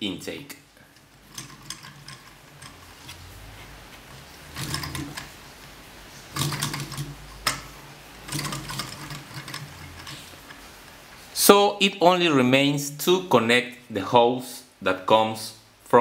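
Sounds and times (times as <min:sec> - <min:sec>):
light mechanical clicks and rattles: 0:00.8 - 0:05.4, 0:06.2 - 0:11.3.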